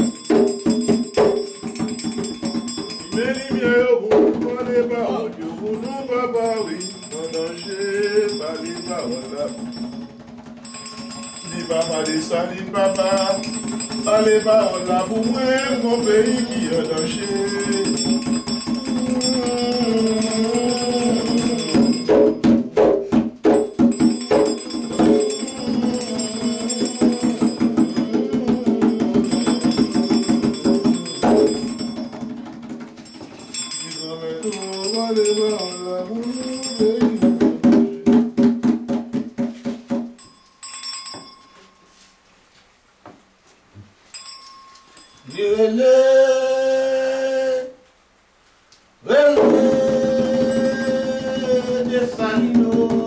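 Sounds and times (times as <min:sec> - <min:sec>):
small bell ringing: 0:00.0 - 0:04.0, 0:05.8 - 0:22.8, 0:23.5 - 0:37.6, 0:40.2 - 0:42.3, 0:44.0 - 0:46.4, 0:50.4 - 0:51.6
rapidly shaken rattle: 0:05.8 - 0:22.1
voices singing a chant: 0:11.5 - 0:22.2, 0:24.3 - 0:31.9, 0:49.0 - 0:53.0.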